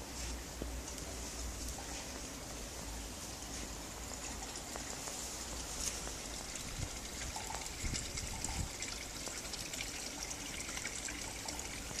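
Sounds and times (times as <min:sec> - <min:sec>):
fine scattered patter: 0:00.0 - 0:06.9.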